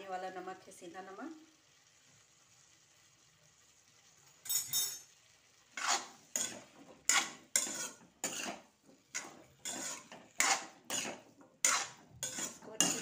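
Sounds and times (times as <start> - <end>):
metal spatula scraping metal pan: 5.7 - 13.0.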